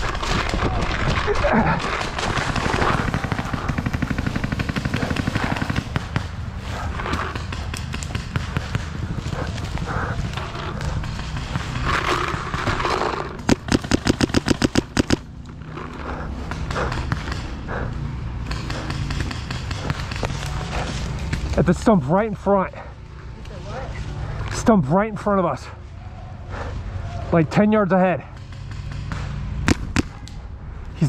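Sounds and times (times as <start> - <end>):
paintball marker rapid shots: 0.0 - 21.7, 28.2 - 30.4
distant paintball fire crackling: 0.0 - 22.0, 28.2 - 30.5.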